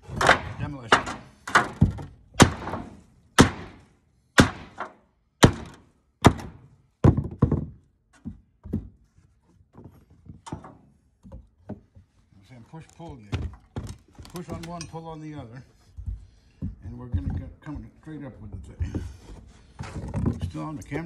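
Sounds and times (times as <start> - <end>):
hammer striking a pry bar: 2.4 - 3.8, 4.4 - 6.6.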